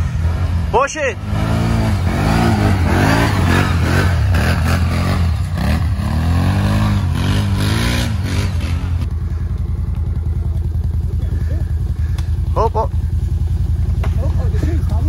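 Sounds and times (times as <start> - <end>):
atv engine revving: 0.0 - 15.0.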